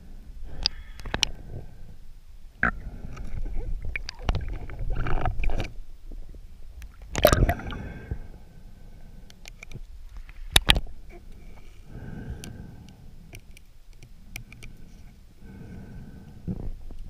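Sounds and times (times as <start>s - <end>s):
low water noise: 0.0s - 17.0s
underwater sharp clicks: 6.8s - 7.8s, 12.4s - 14.8s.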